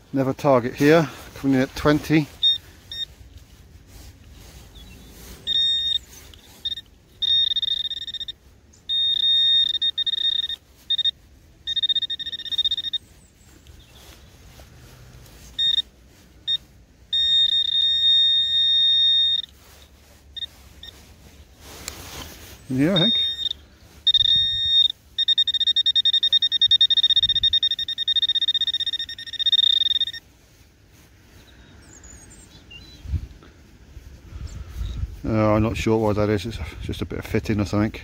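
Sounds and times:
metal detector high-pitched tone: 0:00.8 - 0:03.2, 0:04.5 - 0:13.8, 0:15.4 - 0:21.1, 0:22.6 - 0:30.3.

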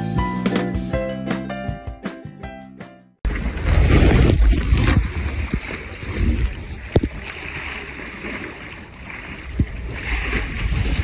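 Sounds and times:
water washing against boat hull: 0:03.3 - 0:11.0
wind buffeting microphone: 0:03.3 - 0:11.0.

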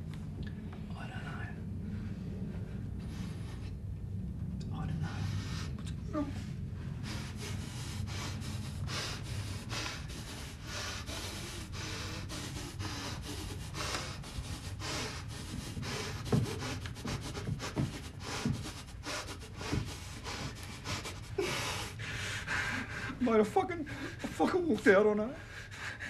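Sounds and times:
man breathing heavily and sniffing: 0:01.8 - 0:03.9, 0:05.0 - 0:24.7, 0:25.4 - 0:26.0
man sobbing: 0:22.6 - 0:25.1.

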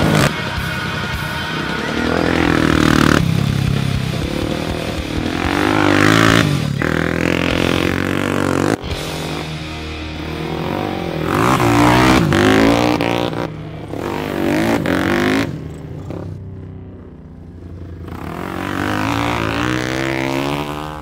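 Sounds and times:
atv engine revving: 0:00.0 - 0:21.0.

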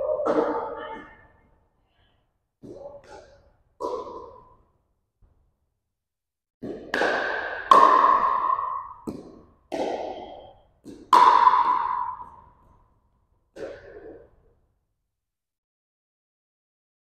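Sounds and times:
paddles hitting plastic ball: 0:06.6 - 0:12.8.

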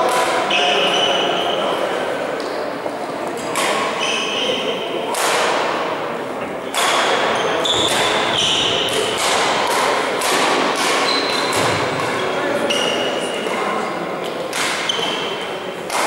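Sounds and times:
sharp knocks in sports hall: 0:03.4 - 0:04.0, 0:05.1 - 0:13.1, 0:14.3 - 0:16.0
sports shoes squeaking: 0:03.7 - 0:04.9, 0:06.7 - 0:09.2, 0:10.8 - 0:13.2, 0:14.8 - 0:15.4.

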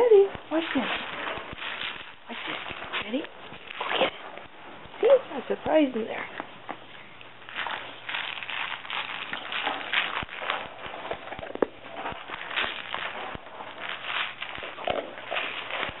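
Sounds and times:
rattling and rustling: 0:00.0 - 0:06.4.

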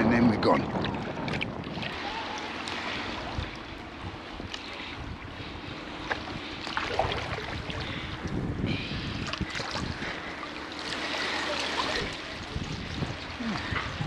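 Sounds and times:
water rushing around push net: 0:00.4 - 0:14.0
faint clicks: 0:04.5 - 0:04.7.

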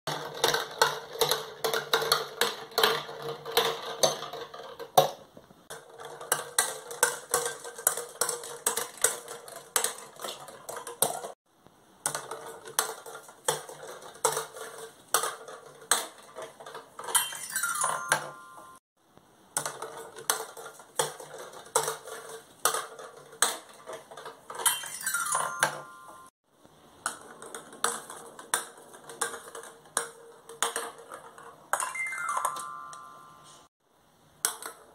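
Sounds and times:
plastic balls rattling: 0:00.1 - 0:11.4, 0:12.0 - 0:18.8, 0:19.6 - 0:26.3, 0:27.0 - 0:33.3
toy xylophone notes: 0:17.1 - 0:18.8, 0:24.6 - 0:26.3, 0:31.8 - 0:33.7.

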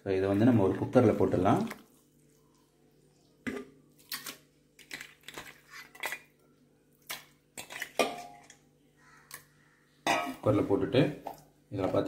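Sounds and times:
meat clattering into metal pot: 0:07.1 - 0:08.6.

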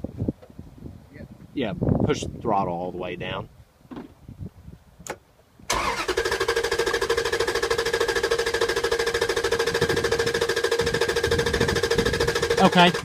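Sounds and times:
starter motor cranking engine: 0:05.7 - 0:13.0.

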